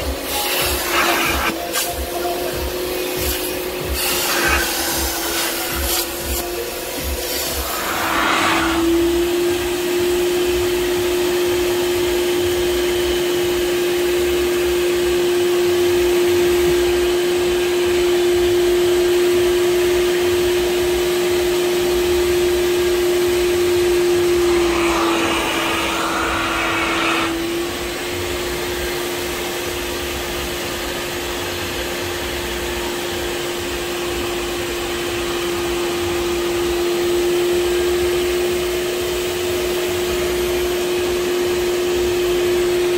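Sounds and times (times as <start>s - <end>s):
suction motor whining: 2.6s - 9.8s, 23.0s - 28.3s
rush of air: 7.4s - 9.0s.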